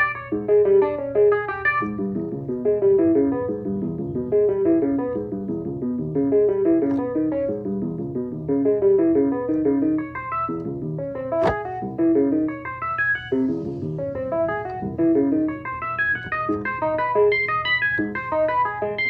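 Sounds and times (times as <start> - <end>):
synthesizer electric piano notes: 0.0 - 19.0
sharp click: 11.4 - 11.8.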